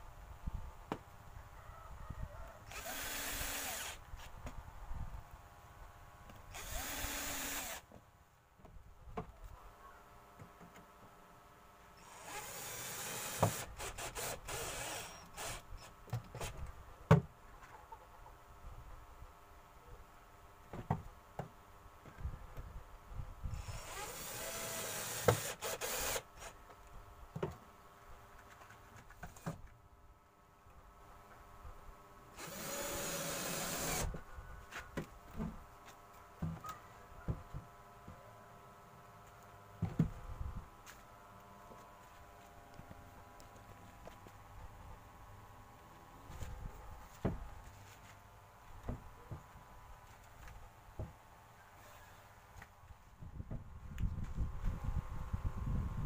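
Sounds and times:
cordless drill driving screws: 2.7s - 4.0s, 6.5s - 7.8s, 12.0s - 15.9s, 23.6s - 26.5s, 32.4s - 34.1s.

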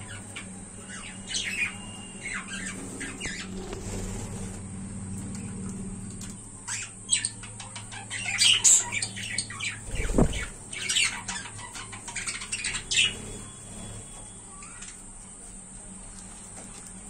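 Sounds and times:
budgerigars chattering: 6.7s - 13.2s.

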